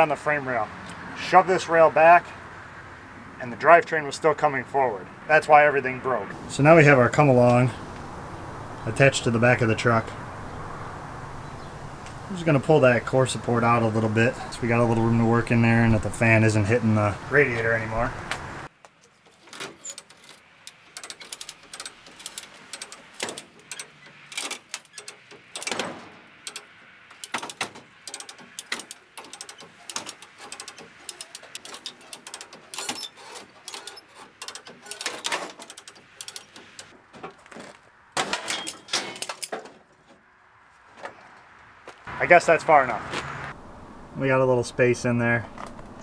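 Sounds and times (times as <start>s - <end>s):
ratchet clicking: 19.7s - 25.8s, 26.4s - 36.9s.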